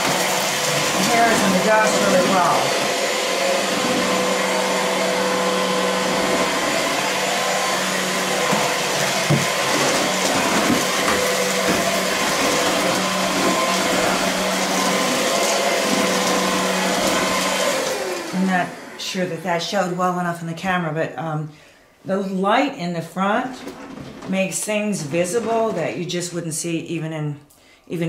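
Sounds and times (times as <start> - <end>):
stick vacuum running: 0.0 - 19.0.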